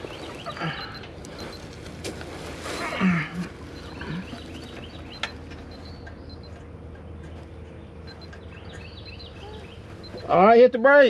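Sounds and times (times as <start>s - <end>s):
small birds chirping: 0.0s - 1.8s, 2.6s - 11.0s
low steady hum: 0.0s - 11.0s.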